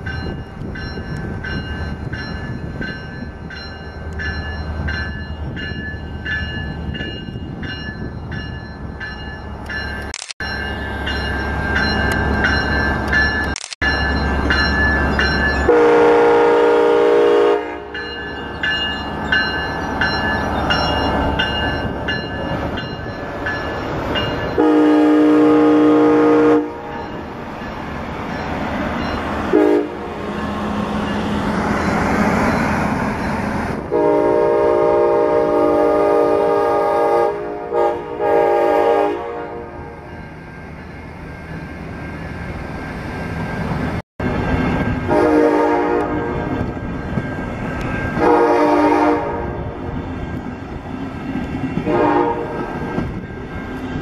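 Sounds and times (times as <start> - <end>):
train wheels rolling on rails: 0.0 - 17.3, 17.9 - 26.0, 40.1 - 54.0
train horn chord blasts: 15.6 - 18.0, 24.6 - 27.0, 29.5 - 30.2, 33.9 - 40.0, 45.1 - 46.5, 48.2 - 49.8, 51.8 - 52.8.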